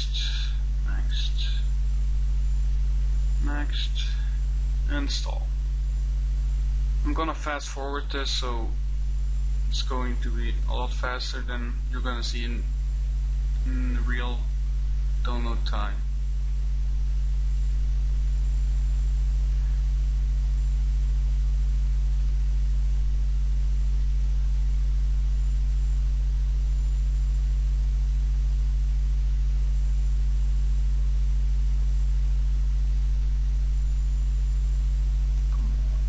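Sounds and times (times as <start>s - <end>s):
faint hiss: 0.0s - 5.5s
electrical mains hum: 0.0s - 36.0s.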